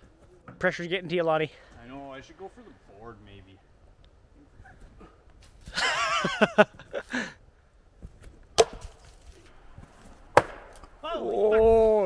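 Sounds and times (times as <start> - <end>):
axes thudding into wood: 8.6 - 9.1, 10.3 - 10.9.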